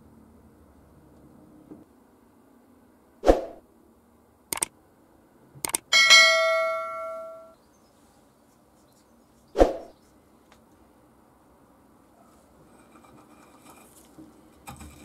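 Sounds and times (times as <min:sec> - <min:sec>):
quick clicks: 0:04.5 - 0:04.7, 0:05.6 - 0:05.9
bell ding: 0:06.0 - 0:07.5.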